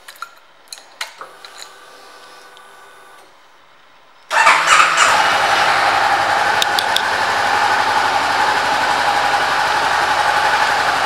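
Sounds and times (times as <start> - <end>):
fuel pump whir: 4.3 - 11.0
motorcycle engine idling: 4.3 - 11.0
starter motor cranking: 4.3 - 11.0.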